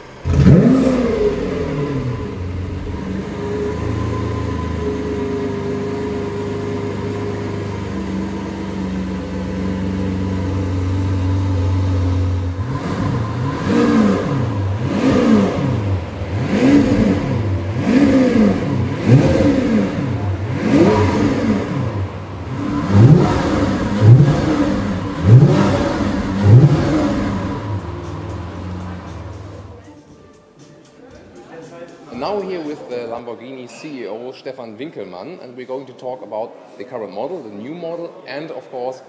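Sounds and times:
car engine idling and revving: 0:00.0 - 0:30.0.

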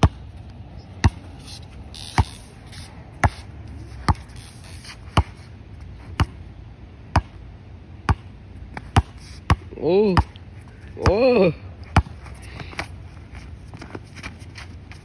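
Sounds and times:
basketball bouncing on hard court: 0:01.0 - 0:01.2, 0:08.1 - 0:10.3, 0:11.9 - 0:12.2.

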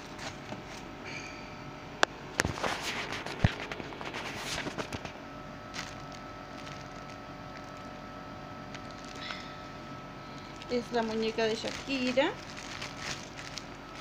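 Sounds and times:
plastic wrapping crinkling: 0:02.4 - 0:09.6, 0:10.3 - 0:14.0.

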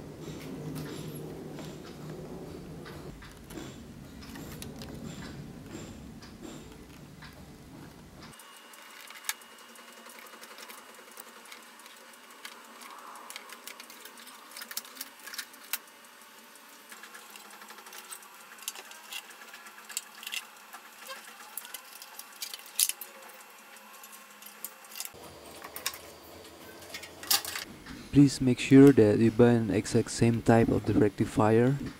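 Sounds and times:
clicks of metal parts being handled: 0:26.7 - 0:28.0.

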